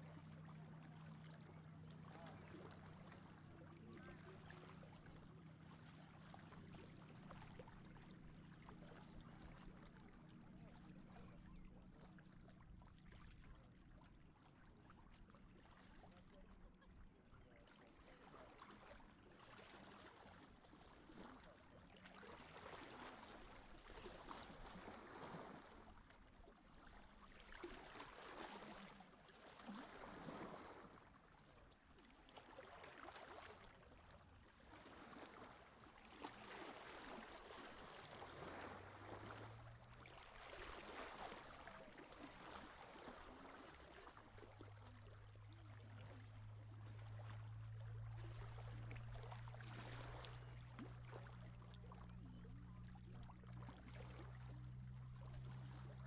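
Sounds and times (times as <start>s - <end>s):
low steady hum: 0.0s - 32.1s, 33.6s - 56.0s
faint sea waves washing in: 32.3s - 56.0s.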